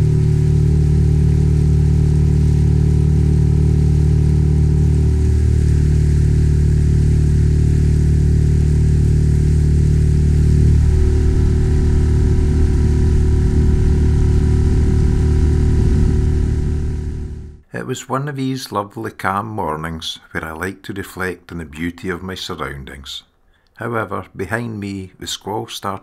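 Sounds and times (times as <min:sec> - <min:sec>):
outboard motor running: 0:00.0 - 0:17.6.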